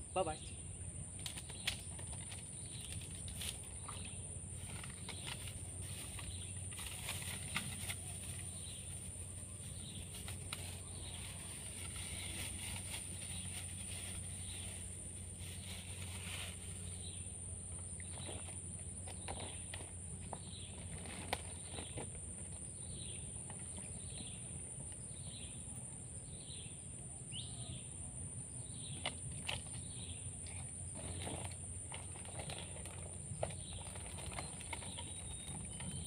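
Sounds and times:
rustles: 1.2s - 24.4s.

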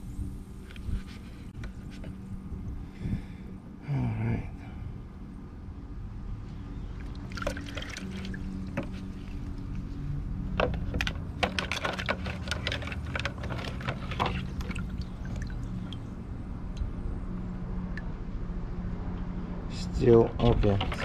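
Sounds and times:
liquid sloshing and dripping: 6.9s - 9.8s, 10.8s - 16.9s.

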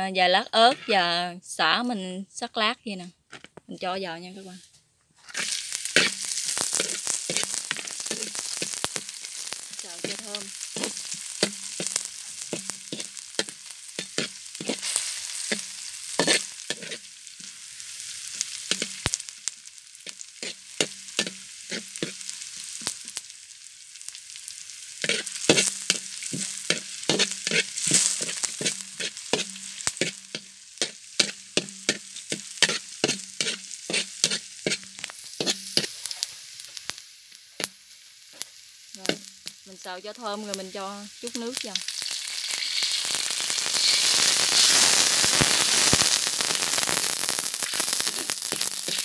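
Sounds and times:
food sizzling in hot oil: 0.0s - 3.0s, 3.7s - 49.0s
metal spatula scraping a wok: 0.5s - 1.2s, 4.2s - 19.0s, 20.0s - 22.8s, 25.0s - 36.7s, 41.8s - 44.8s, 48.6s - 49.0s.

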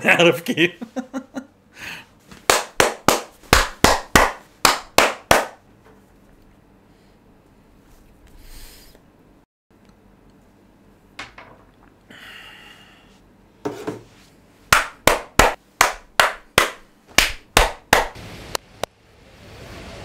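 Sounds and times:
hands clapping: 2.4s - 5.6s, 14.7s - 18.2s.

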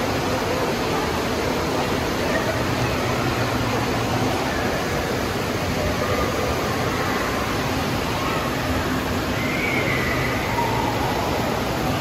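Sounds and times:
distant voices: 0.0s - 12.0s.

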